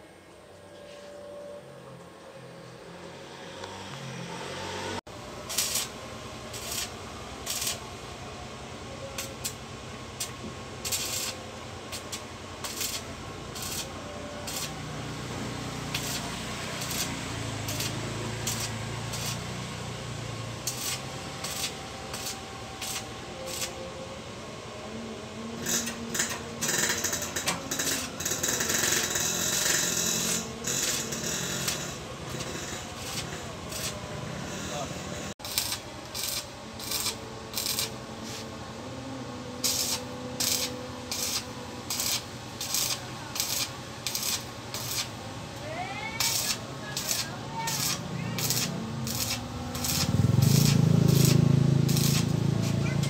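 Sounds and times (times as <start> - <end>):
arc welding crackling: 5.1 - 24.2, 25.4 - 53.0.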